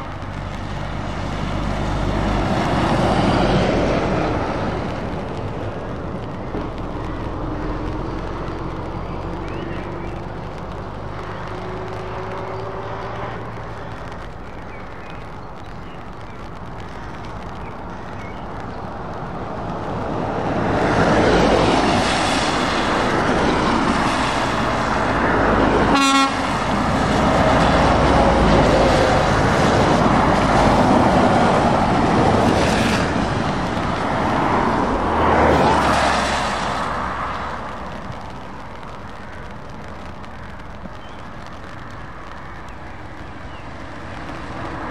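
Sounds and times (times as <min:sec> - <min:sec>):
heavy trucks passing on wet road: 0:00.0 - 0:44.9
truck horn blast: 0:25.9 - 0:26.7.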